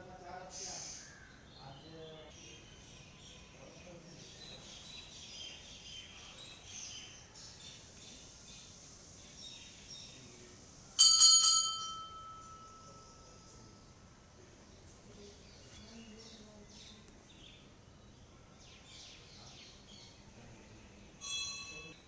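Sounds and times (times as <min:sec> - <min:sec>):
birds chirping: 0:00.0 - 0:10.7, 0:12.2 - 0:22.0
metal bell ringing: 0:11.0 - 0:13.9, 0:21.2 - 0:22.0.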